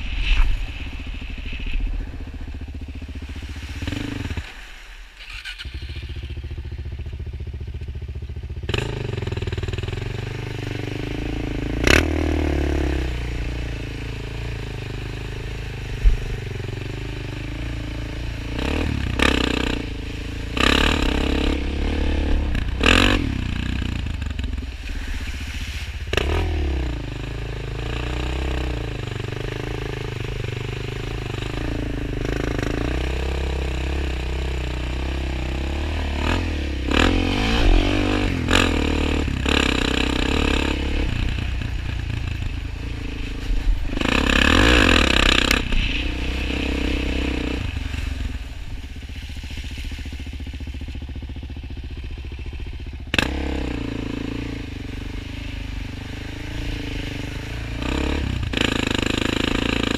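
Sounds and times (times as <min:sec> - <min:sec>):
quad engine revving: 0:08.5 - 0:49.4, 0:51.7 - 0:59.9
water splashing: 0:24.4 - 0:26.2.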